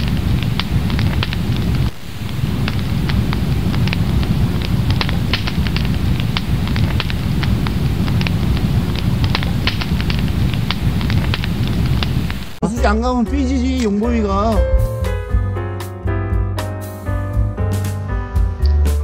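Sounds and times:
campfire crackling and popping: 0:00.0 - 0:12.6
low rumble: 0:00.0 - 0:12.6.

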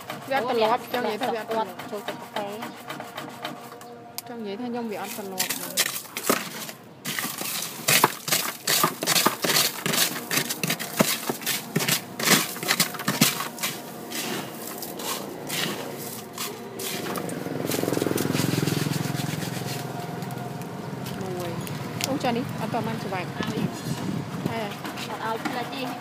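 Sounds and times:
crushed ice crunching: 0:05.0 - 0:23.2.

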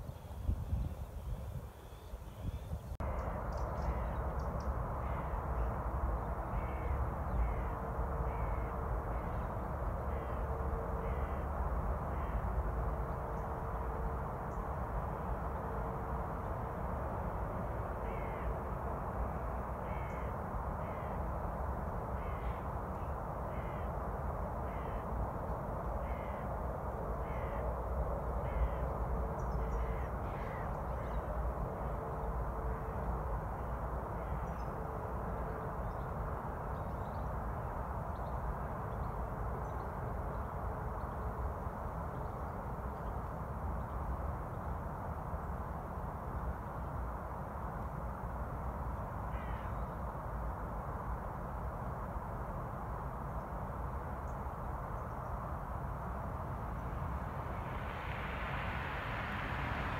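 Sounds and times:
crows cawing: 0:05.0 - 0:05.7, 0:06.6 - 0:09.4, 0:10.0 - 0:12.6, 0:18.0 - 0:18.6, 0:19.8 - 0:21.3, 0:22.2 - 0:22.6, 0:23.5 - 0:24.0, 0:24.6 - 0:25.2, 0:26.0 - 0:26.5, 0:27.2 - 0:27.8, 0:28.4 - 0:28.9, 0:29.6 - 0:31.2, 0:49.3 - 0:49.8.

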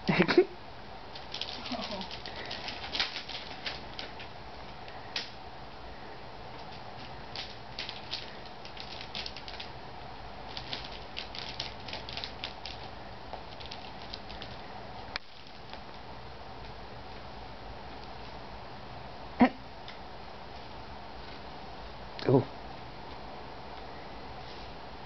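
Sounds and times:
gift-wrap paper crinkling: 0:01.1 - 0:04.4, 0:06.6 - 0:09.8, 0:10.4 - 0:16.0.

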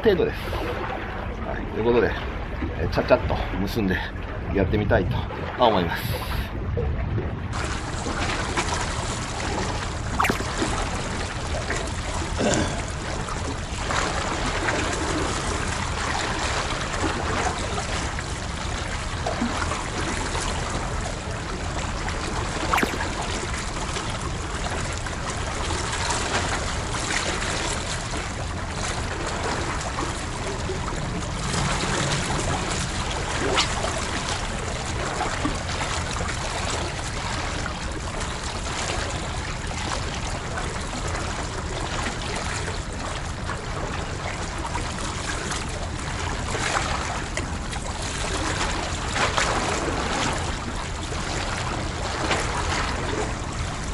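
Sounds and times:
sharp water splashes: 0:07.6 - 0:13.2, 0:22.5 - 0:24.6.

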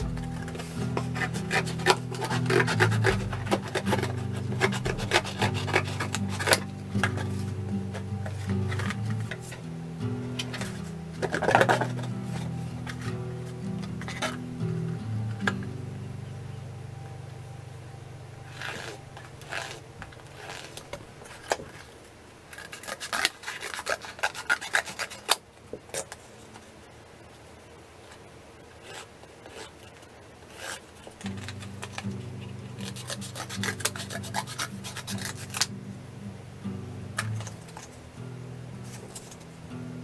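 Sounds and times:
scissors cutting cardboard: 0:00.0 - 0:09.6, 0:10.4 - 0:13.1, 0:13.8 - 0:14.4, 0:18.5 - 0:21.9, 0:22.6 - 0:26.2, 0:28.8 - 0:32.1, 0:32.8 - 0:35.7.

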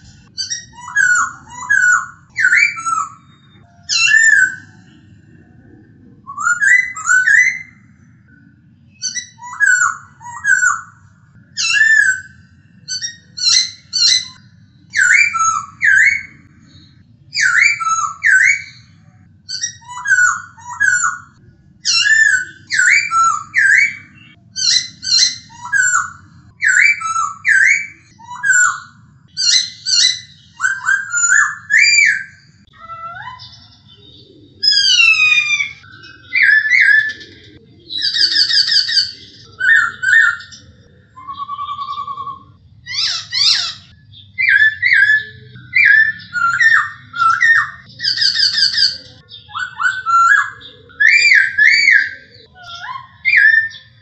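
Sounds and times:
bird whistling and trilling: 0:00.0 - 0:05.3, 0:06.2 - 0:54.0.

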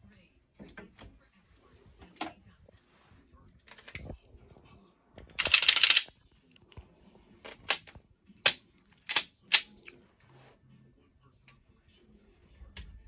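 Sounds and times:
pistol slide metallic rattle: 0:05.4 - 0:06.1.

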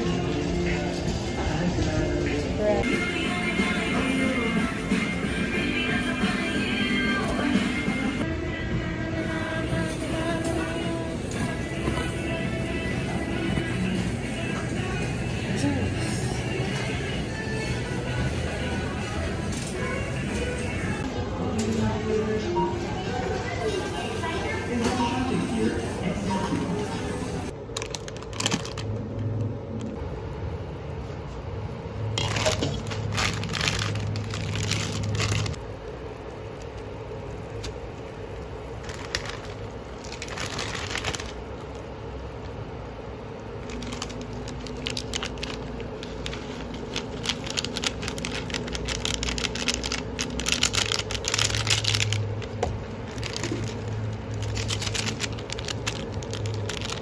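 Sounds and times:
steady low hum: 0:00.0 - 0:57.0
plastic packets crinkling and tearing: 0:27.6 - 0:29.1, 0:32.2 - 0:35.6, 0:38.8 - 0:41.9, 0:43.6 - 0:57.0
noodles bubbling in boiling water: 0:32.0 - 0:57.0.

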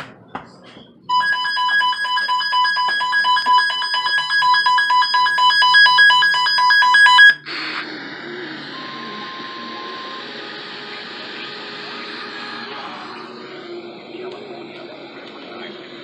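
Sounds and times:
rapid electronic alarm beeping: 0:01.1 - 0:13.8
radio hiss: 0:07.4 - 0:16.0.

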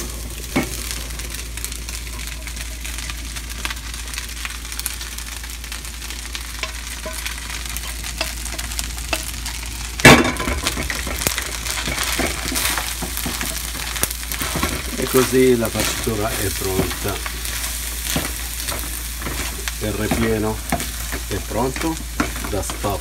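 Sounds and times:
stuffing sizzling in a pan: 0:00.0 - 0:23.0
wooden spoon scraping a pan: 0:10.6 - 0:23.0.

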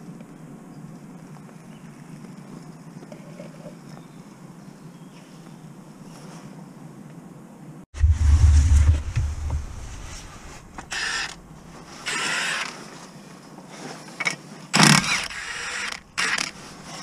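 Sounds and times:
low thud and rumble: 0:08.0 - 0:11.8
metallic creaking and scraping: 0:08.0 - 0:12.2.

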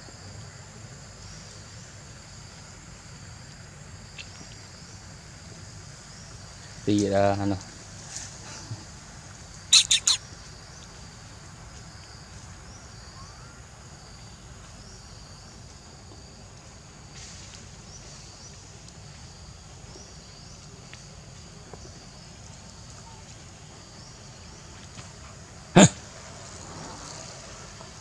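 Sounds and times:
faint high-pitched chirping: 0:09.7 - 0:10.2, 0:12.8 - 0:13.6.

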